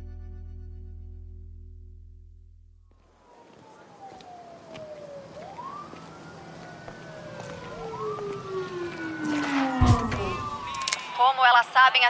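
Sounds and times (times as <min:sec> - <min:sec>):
wailing siren: 0:02.9 - 0:12.0.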